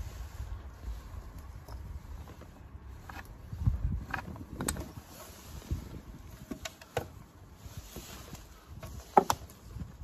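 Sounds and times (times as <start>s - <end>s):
wooden boards knocking and clattering: 8.9s - 9.5s.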